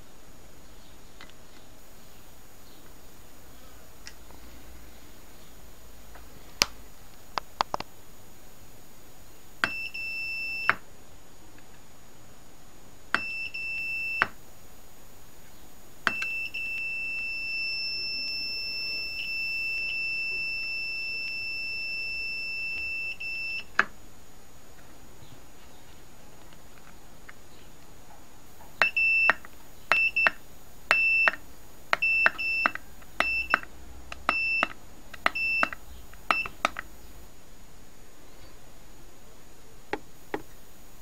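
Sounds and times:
multimeter high steady beeps: 9.6s - 10.8s, 13.1s - 14.4s, 16.1s - 23.7s, 28.8s - 36.8s
probe contact clicks: 28.8s - 36.9s.

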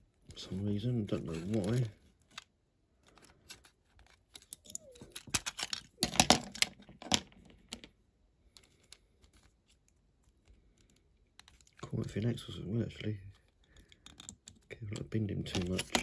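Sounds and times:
toy car parts clicking and scraping: 3.1s - 7.9s, 13.0s - 16.0s.

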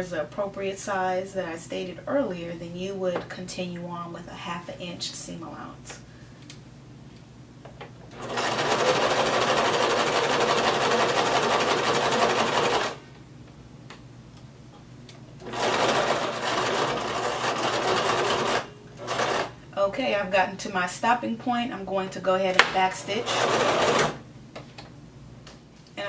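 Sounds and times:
sewing machine stitching: 8.1s - 13.0s, 15.4s - 19.5s, 23.1s - 24.2s.

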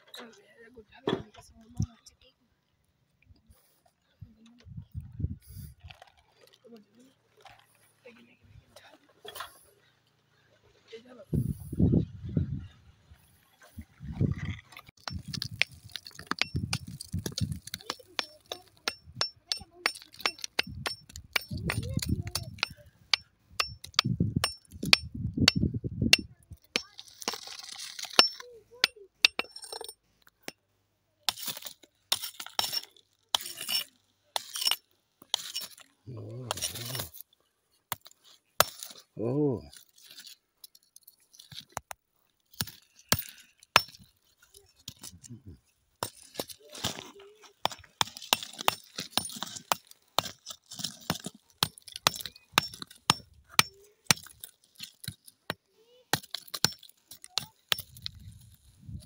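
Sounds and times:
gritty crunch of gravel: 12.6s - 25.1s, 26.1s - 28.5s, 31.3s - 59.0s
metal tool clinking on rock: 15.0s - 30.6s, 31.3s - 35.9s, 36.5s - 58.6s.

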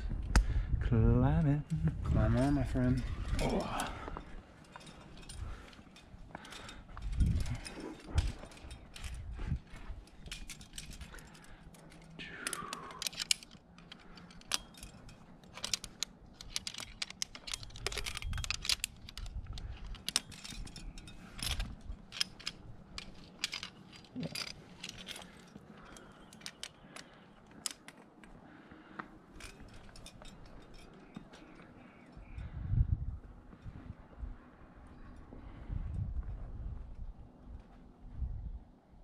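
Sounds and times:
carabiners clinking and jangling: 1.4s - 32.8s
handling bumps: 1.9s - 32.6s.

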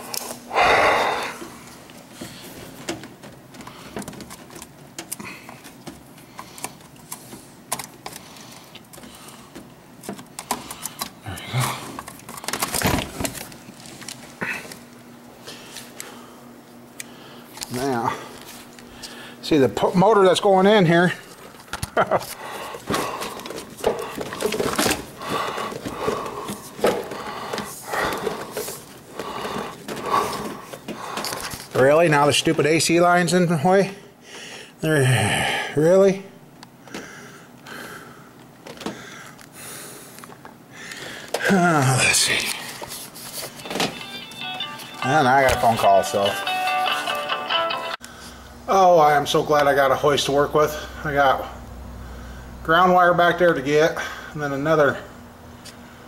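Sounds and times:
clicks and rattles of wiring: 2.7s - 14.8s, 21.4s - 32.7s.

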